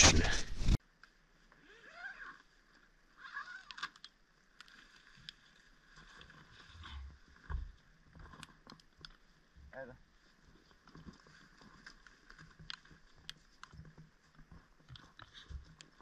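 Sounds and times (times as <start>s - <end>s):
small clicks: 3.3s - 5.4s.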